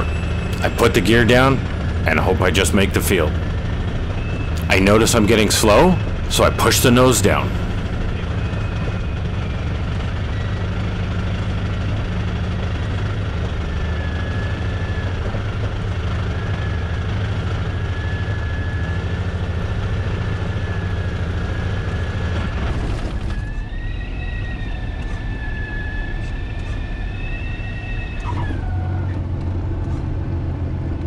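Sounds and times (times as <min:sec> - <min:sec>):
engine and propeller rumble: 0:00.0 - 0:31.0
faint wavering whistle: 0:07.3 - 0:11.0, 0:23.2 - 0:29.2.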